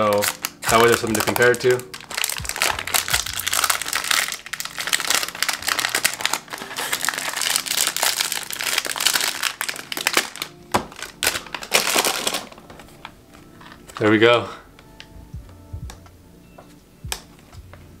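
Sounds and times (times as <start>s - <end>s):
plastic wrap crinkling: 0.0s - 14.2s.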